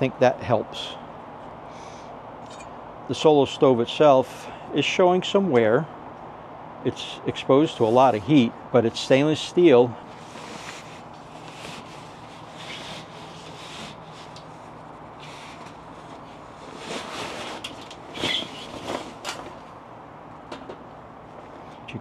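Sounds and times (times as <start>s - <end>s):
fabric bag rustling: 15.4s - 19.6s.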